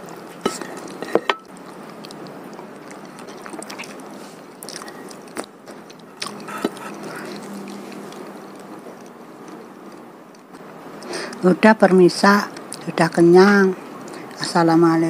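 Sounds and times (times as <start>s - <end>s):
wet chewing: 0.0s - 10.6s
mouth clicks and smacks: 1.5s - 9.2s.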